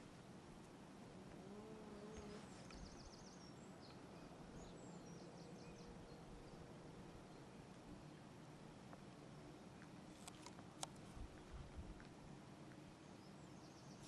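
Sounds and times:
bird chirps: 2.0 - 6.7.

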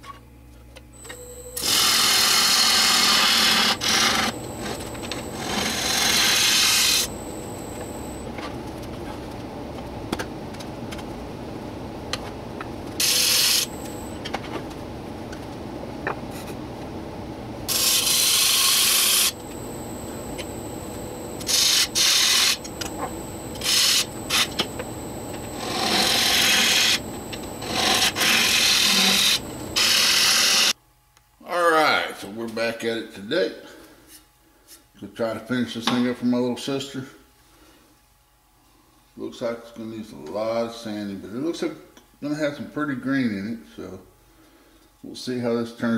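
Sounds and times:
wood lathe humming: 1.0 - 8.3, 13.0 - 14.2, 17.7 - 30.7.

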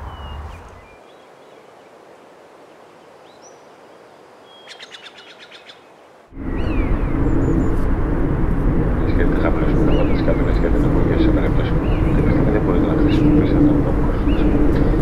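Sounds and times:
birds chirping: 0.0 - 15.0
bird trill: 4.4 - 5.9, 6.5 - 7.8, 9.8 - 10.4, 11.7 - 12.4
loud steady rumbling noise: 6.3 - 15.0.

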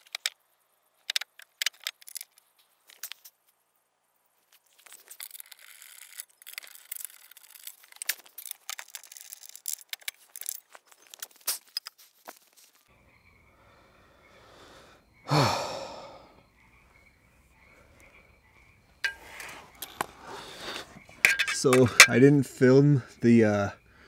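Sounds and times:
metal tools clinking and scraping: 19.0 - 22.4.

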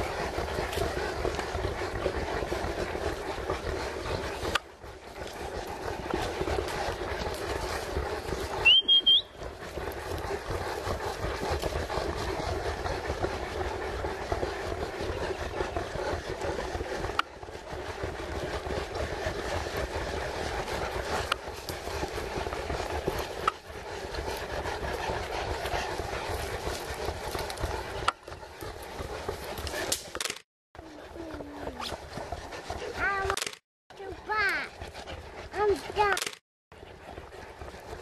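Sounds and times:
outdoor background rumble: 0.0 - 38.0
rising whistle: 8.6 - 9.4.

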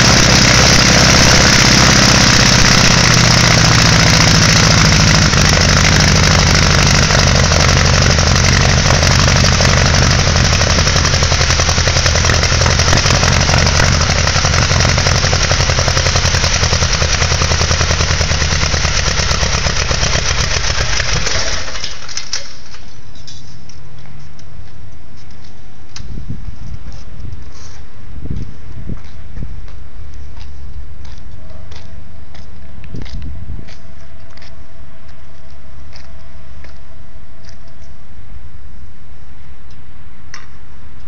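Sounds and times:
aircraft engine running: 0.0 - 22.4.

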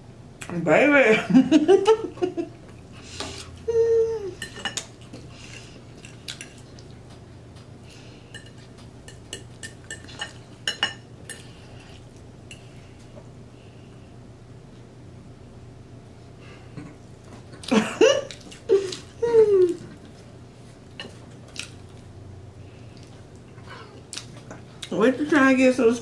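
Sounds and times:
person humming: 3.6 - 4.4, 18.7 - 19.9
person exclaiming with enjoyment: 18.7 - 19.8.

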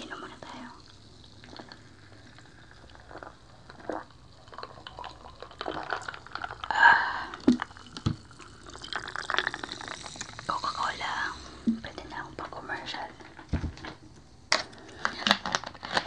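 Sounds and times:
cola pouring into mug: 0.0 - 13.9
person swallowing drink: 1.4 - 10.6, 11.5 - 12.1.

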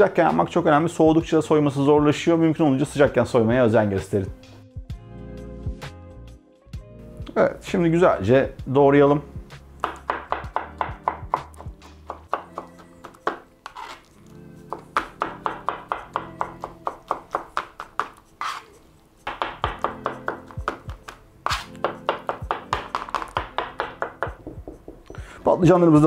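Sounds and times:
background music: 0.0 - 26.0
knife chopping on plastic board: 9.8 - 14.0, 14.7 - 18.7, 19.3 - 25.0.

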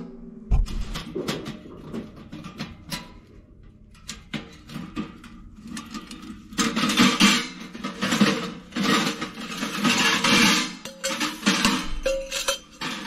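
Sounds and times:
metal pipes scraping and clinking: 0.6 - 13.0.

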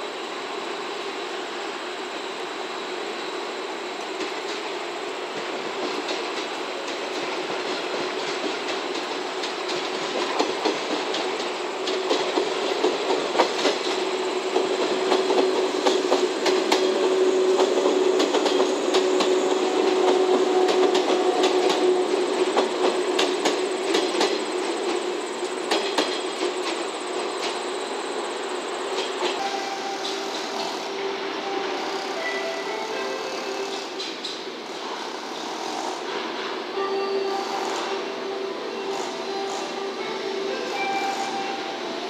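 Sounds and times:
train rumble: 0.0 - 42.0
train wheels clicking over rail joints: 5.8 - 27.8.

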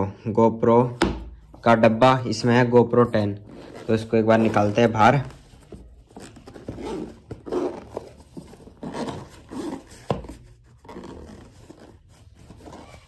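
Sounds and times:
packaging rustling and scraping: 3.1 - 13.0.

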